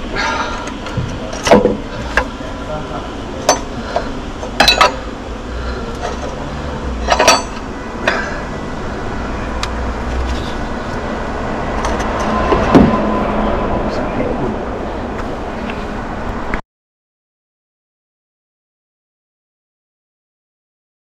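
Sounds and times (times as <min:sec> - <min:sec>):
steady low hum: 0:00.0 - 0:16.6
tools and metal parts clinking: 0:00.6 - 0:02.3, 0:03.4 - 0:05.0, 0:05.9 - 0:08.2, 0:11.8 - 0:12.4.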